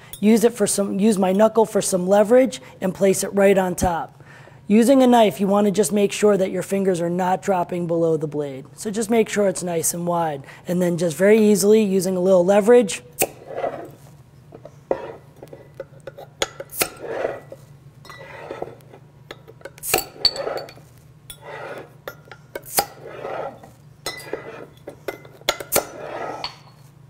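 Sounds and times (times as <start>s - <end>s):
metal clinking on glass: 18.0s - 18.3s, 19.3s - 22.6s, 24.0s - 25.8s.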